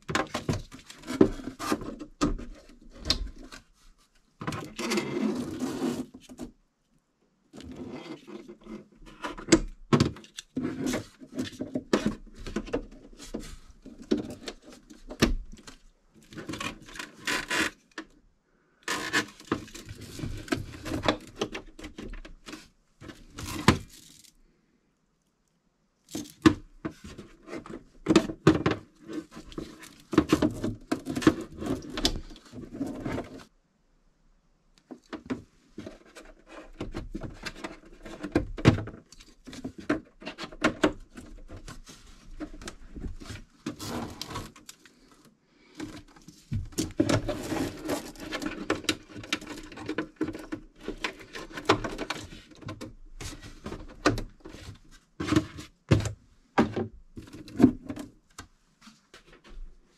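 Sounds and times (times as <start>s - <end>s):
cables rustling against wood: 34.8s - 59.9s.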